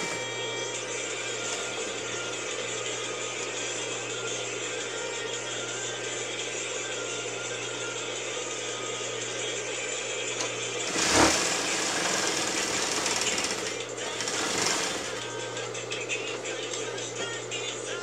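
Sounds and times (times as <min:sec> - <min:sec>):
sewing machine stitching: 0:00.0 - 0:00.3, 0:01.4 - 0:02.0, 0:10.4 - 0:15.4.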